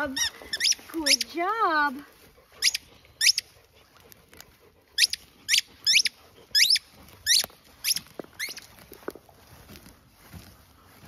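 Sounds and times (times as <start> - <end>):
dog whining in high squeals: 5.0 - 8.6.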